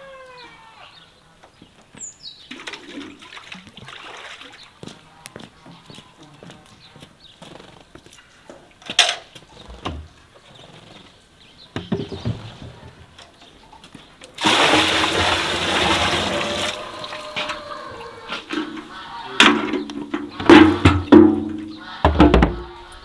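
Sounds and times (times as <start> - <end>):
water pouring into barrel: 2.5 - 4.7, 14.4 - 17.6.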